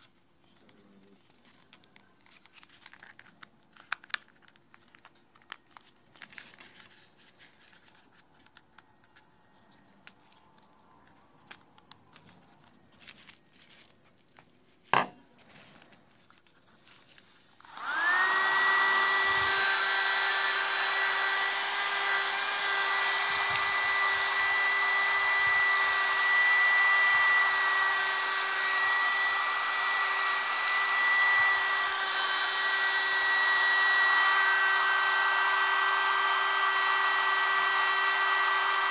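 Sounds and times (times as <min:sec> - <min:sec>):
mini vacuum motor whine: 0:02.2 - 0:14.1, 0:17.5 - 0:38.9.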